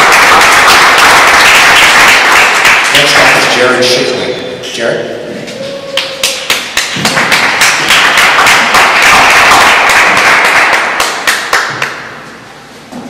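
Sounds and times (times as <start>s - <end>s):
audience applauding: 0.0s - 3.8s, 6.0s - 12.2s.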